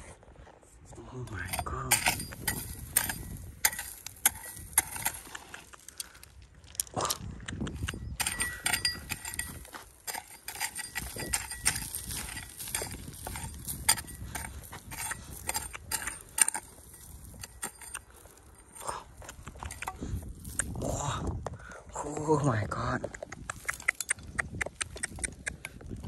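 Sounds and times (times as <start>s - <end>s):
gravel clattering: 0.0s - 26.0s
hoe chopping stony soil: 1.3s - 6.3s, 7.5s - 20.9s.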